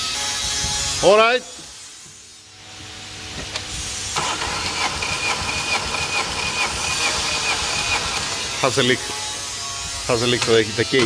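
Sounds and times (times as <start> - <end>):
engine cranking on starter motor: 4.2 - 8.5.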